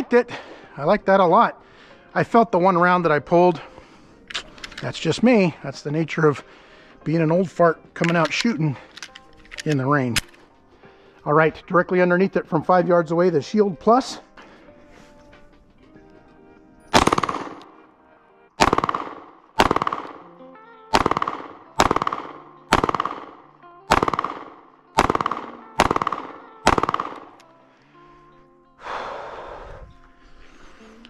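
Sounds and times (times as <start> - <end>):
pistol shots: 16.9 - 17.8, 18.6 - 27.4.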